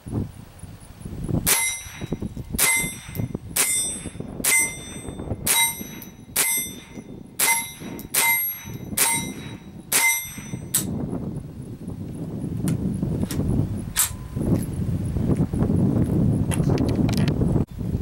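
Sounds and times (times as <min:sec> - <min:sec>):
rifle shots: 0:01.5 - 0:10.5
short metallic ring: 0:01.5 - 0:10.9.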